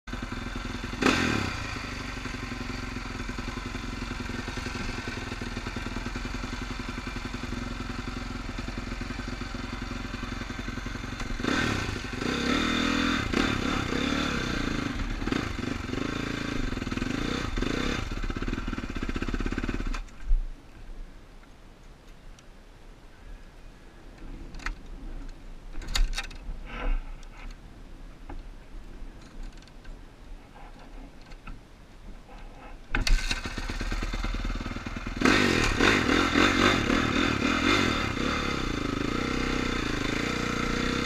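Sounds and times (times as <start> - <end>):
dirt bike engine idling and revving: 0.0 - 20.1, 32.3 - 41.0.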